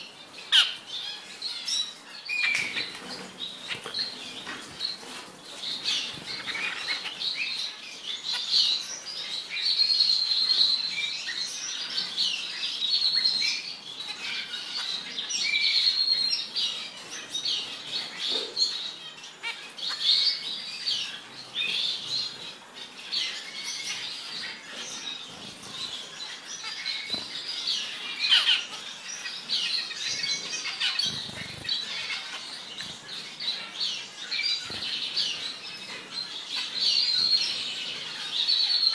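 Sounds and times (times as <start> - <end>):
finches chirping: 0.0 - 38.9.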